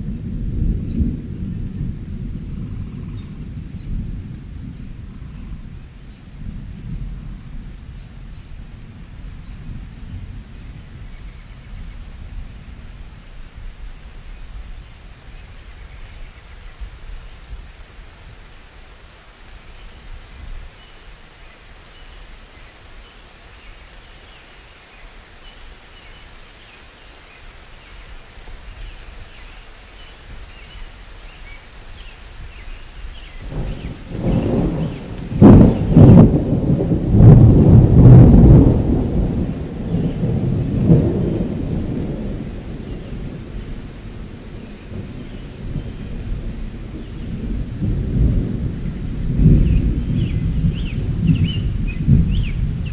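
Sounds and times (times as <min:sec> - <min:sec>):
thunder rumbling and cracking: 0:00.0 - 0:15.2, 0:33.3 - 0:52.9
steady rain: 0:00.0 - 0:52.9.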